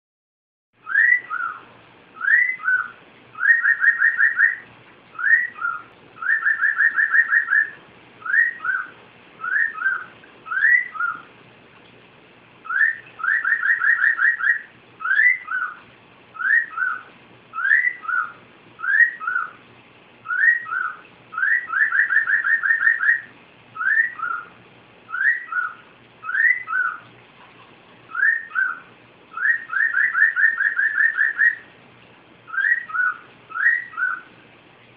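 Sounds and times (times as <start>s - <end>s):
cockatiel whistling a tune: 0.8s - 4.6s, 5.2s - 11.3s, 12.6s - 15.8s, 16.4s - 19.6s, 20.2s - 24.5s, 25.1s - 27.0s, 28.1s - 31.7s, 32.5s - 34.3s.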